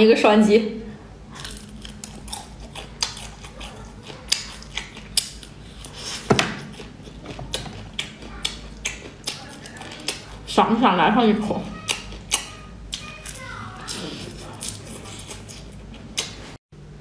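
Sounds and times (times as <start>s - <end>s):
crunchy bites and chewing: 1.4s - 10.5s.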